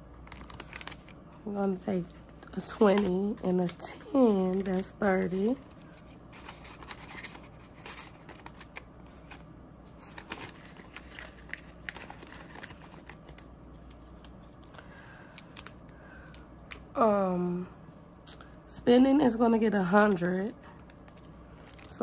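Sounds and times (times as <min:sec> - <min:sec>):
paper banknotes rustling: 0:02.0 - 0:14.8.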